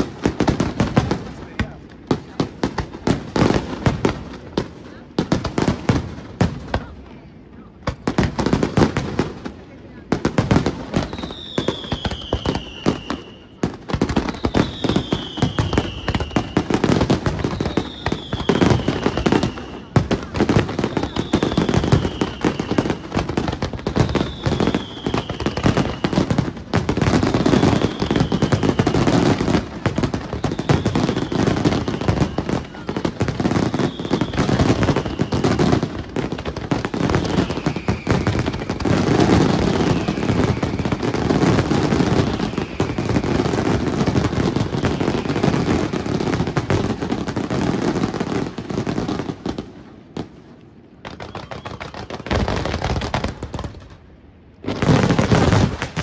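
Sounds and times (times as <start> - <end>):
fireworks bangs and crackle: 0.0 - 56.0
falling firework whistle: 10.9 - 36.0, 36.8 - 46.8, 51.1 - 52.8.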